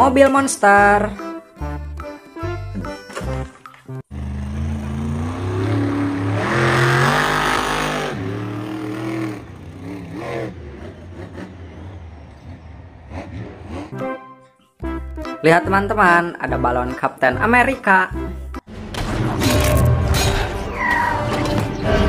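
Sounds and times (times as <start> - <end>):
truck engine revving: 4.0 - 14.2.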